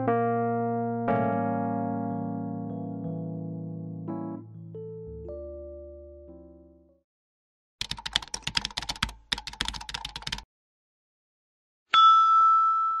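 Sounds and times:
keyboard typing clicks: 7.8 - 10.4
ringing ding: 11.9 - 13.0.

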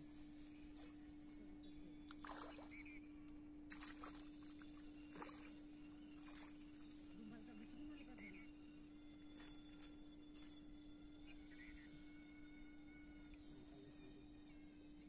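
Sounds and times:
steady low hum: 0.0 - 15.0
fish splashing in water: 2.1 - 2.8, 3.7 - 6.7.

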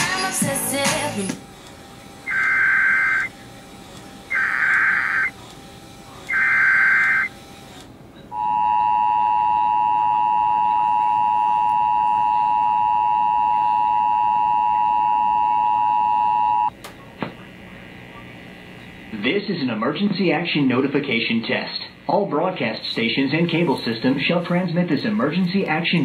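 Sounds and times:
two-tone attention signal: 2.3 - 3.3, 4.3 - 5.3, 6.3 - 7.3, 8.3 - 16.7
warbling digital data bursts: 2.3 - 3.3, 4.3 - 5.3, 6.3 - 7.3.

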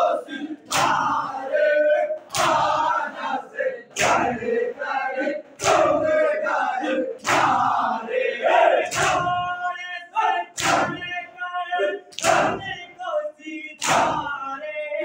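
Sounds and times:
men chanting together: 0.0 - 15.0
hands slapping chests: 0.7 - 1.2, 2.2 - 2.8, 3.9 - 4.4, 5.6 - 6.0, 7.2 - 7.8, 8.9 - 9.4, 10.6 - 11.1, 12.1 - 12.7, 13.8 - 14.2.

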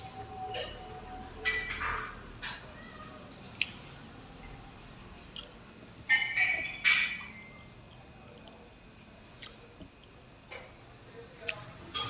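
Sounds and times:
faint eating sounds: 0.0 - 12.0
tableware clinking: 0.4 - 2.7, 5.8 - 7.7.

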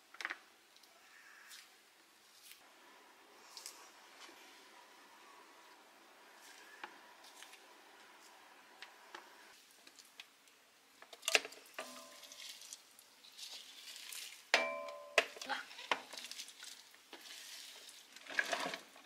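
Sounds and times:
sharp clink: 14.6 - 15.3.

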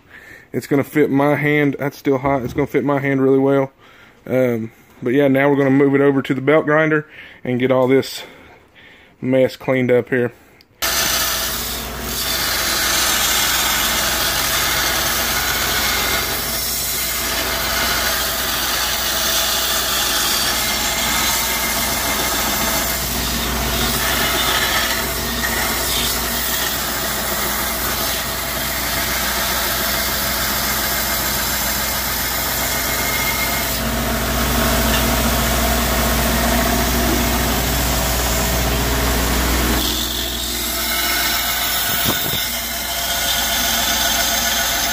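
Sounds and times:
electric motor hum: 10.8 - 44.9
knife grinding on belt grinder: 10.8 - 44.9.

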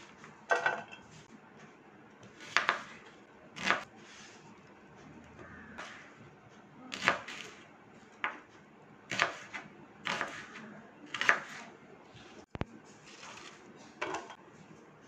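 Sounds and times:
knife chopping on wooden board: 2.2 - 3.0, 3.6 - 3.8, 9.1 - 11.6.

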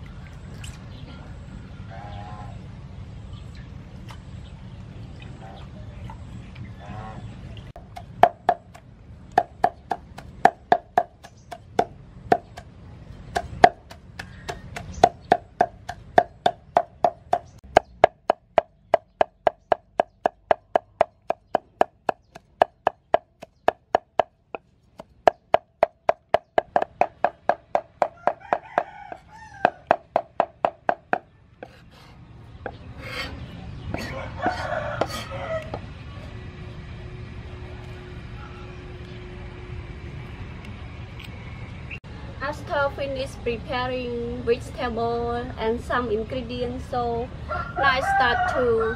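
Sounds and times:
cleaver chopping on wooden board: 7.8 - 8.8, 9.4 - 12.7, 13.3 - 24.3, 25.0 - 31.8.

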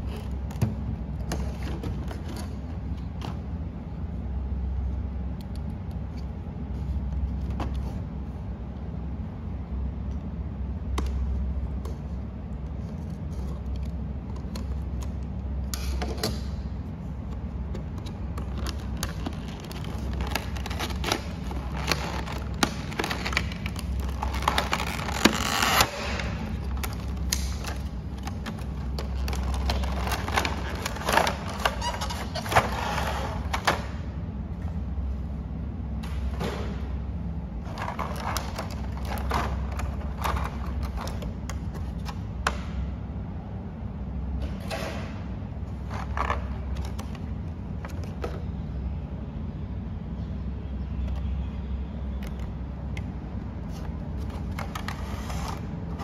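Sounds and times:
low steady hum: 0.0 - 56.0
plastic packaging rustling and clicking: 17.2 - 34.0, 37.6 - 42.5.

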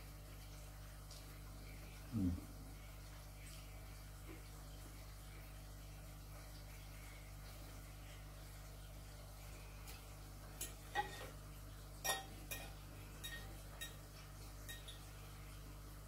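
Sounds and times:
fork clinking on ceramic plate: 12.0 - 14.0, 14.7 - 15.0.

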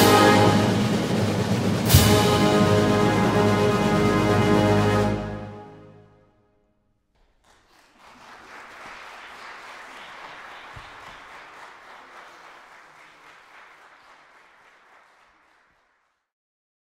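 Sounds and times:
audience applauding: 7.2 - 16.2.

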